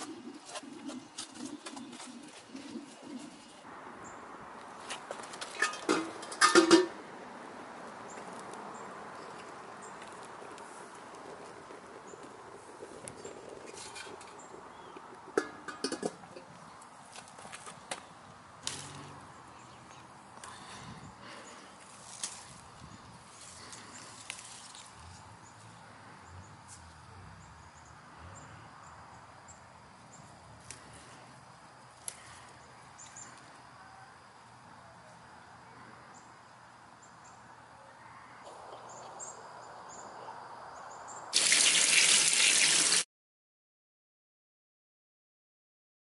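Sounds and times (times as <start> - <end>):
metal grill clinks and clanks: 5.5 - 6.9.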